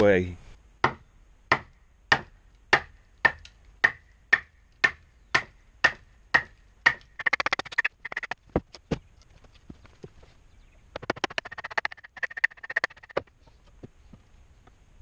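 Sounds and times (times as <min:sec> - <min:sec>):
wood fibres splitting: 0:04.8 - 0:10.1, 0:10.9 - 0:13.3.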